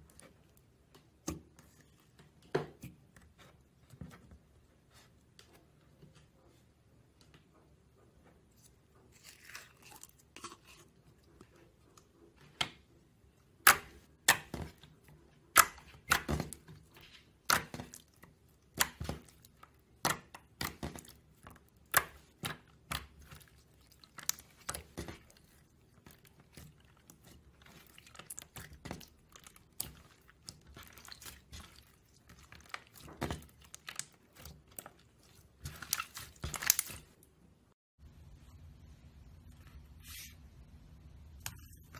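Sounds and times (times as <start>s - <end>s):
slime crackling squelch: 13.6s - 37.4s.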